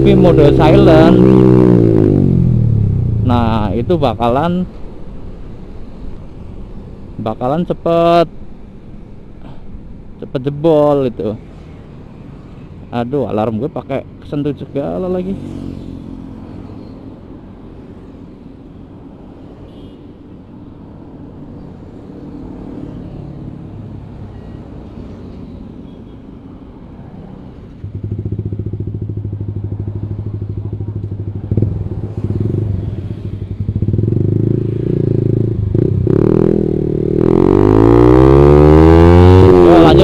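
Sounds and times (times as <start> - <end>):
motorcycle engine idling and revving: 0.0 - 4.6, 26.9 - 40.0.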